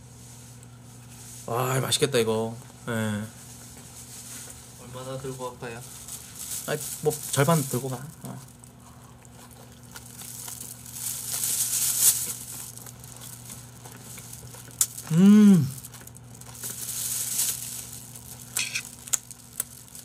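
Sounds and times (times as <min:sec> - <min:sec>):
plastic bag crinkling: 0:05.0 - 0:20.0
person humming: 0:15.0 - 0:15.8.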